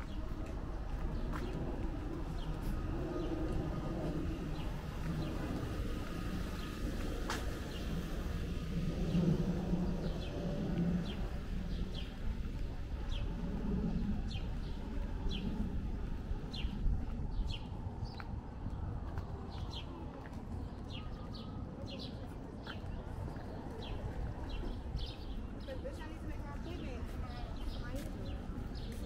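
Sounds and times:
street background rumble: 0.0s - 29.0s.

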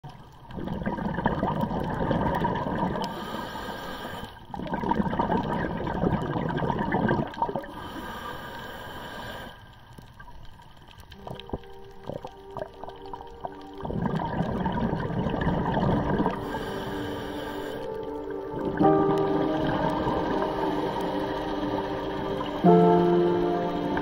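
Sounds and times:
underwater bubbles gurgling: 0.0s - 24.0s
regulator inhale hiss: 3.0s - 4.5s, 7.7s - 9.8s, 16.4s - 18.0s.

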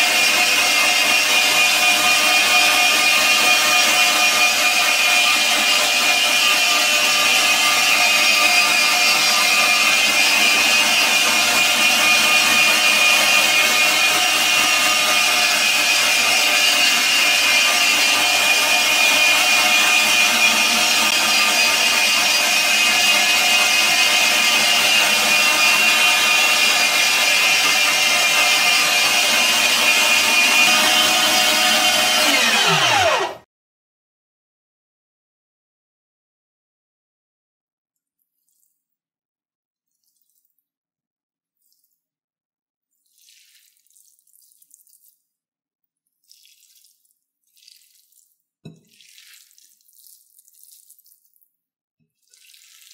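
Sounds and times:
electric meat grinder running: 0.0s - 33.5s.

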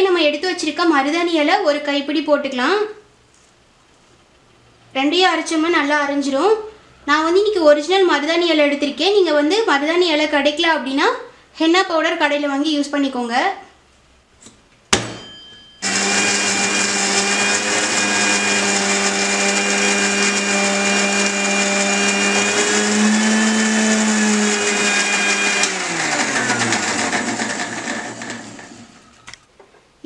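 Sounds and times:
mixer grinder motor running: 15.8s - 29.2s.

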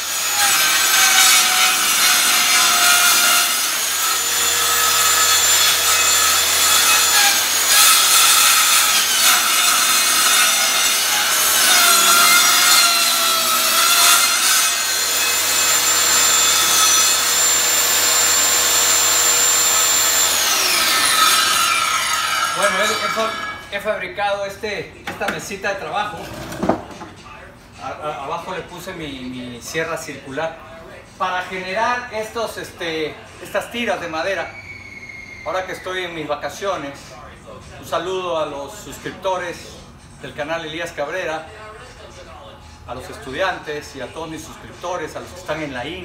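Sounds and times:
table saw ripping wood: 0.0s - 23.7s, 26.1s - 27.0s.

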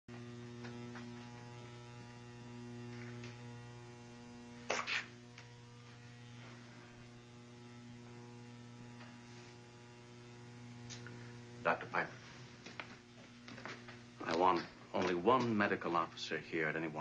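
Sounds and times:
low electrical hum: 0.1s - 17.0s
sharp double crackle: 0.3s - 15.7s.

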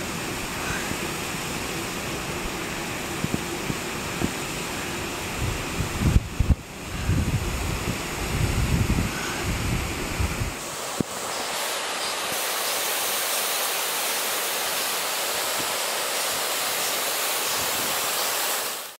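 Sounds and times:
stream rushing over rocks: 0.0s - 19.0s
wind rumble on microphone: 2.4s - 11.1s.

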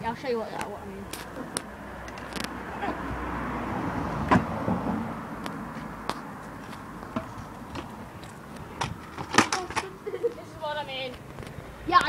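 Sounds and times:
scooter wheels clicking on concrete: 5.4s - 12.0s
scooter landing clatter: 8.8s - 9.9s.

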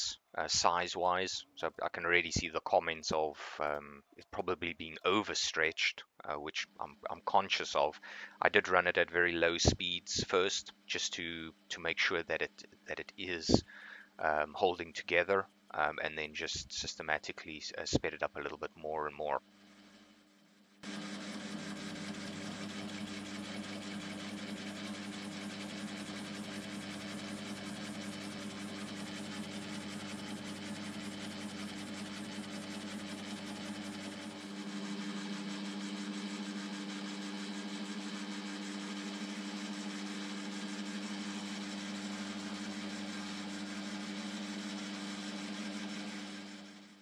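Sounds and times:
metal lathe running: 20.8s - 46.9s.

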